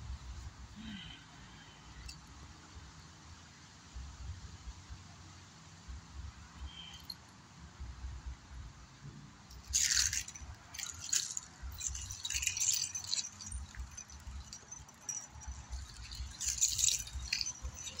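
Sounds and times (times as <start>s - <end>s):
chain whip rattling: 9.5s - 18.0s.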